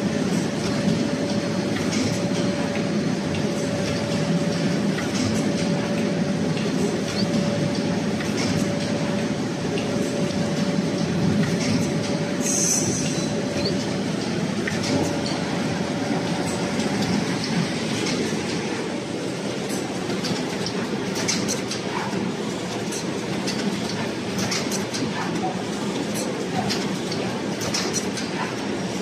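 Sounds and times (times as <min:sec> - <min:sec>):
machine mechanical clatter: 0:00.1 - 0:18.9, 0:19.5 - 0:29.0.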